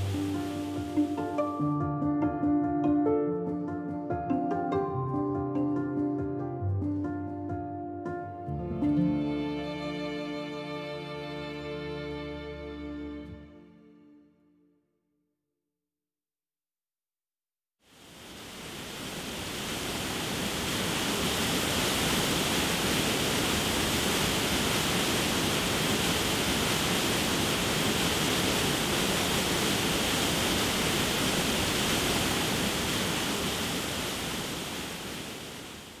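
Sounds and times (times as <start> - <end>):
river rushing over rapids: 17.9 - 36.0.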